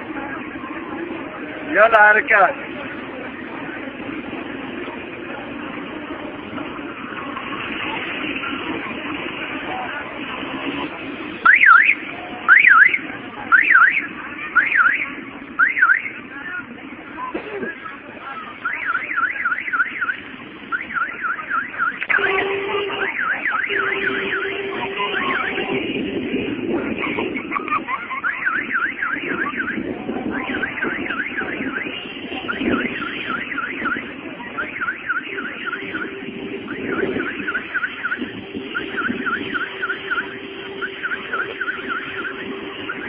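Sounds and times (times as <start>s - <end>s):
electronic alarm siren warbling: 11.4s - 14.0s, 18.6s - 25.8s, 27.0s - 43.0s.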